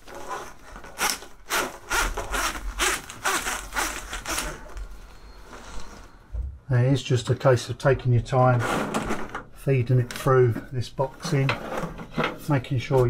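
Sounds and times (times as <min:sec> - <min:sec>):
cables rasping in plastic conduit: 0:00.0 - 0:06.4.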